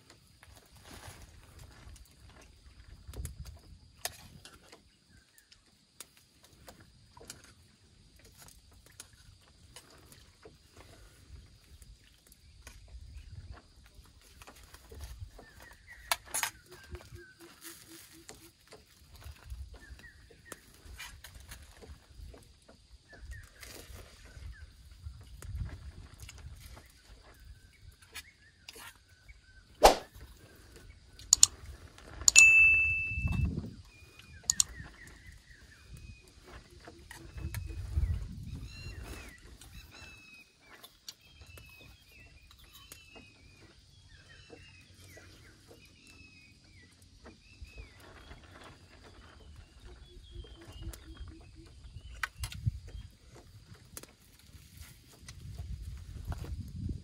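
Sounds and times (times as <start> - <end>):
sharp clicks: 31.2 - 31.6, 34.4 - 34.8.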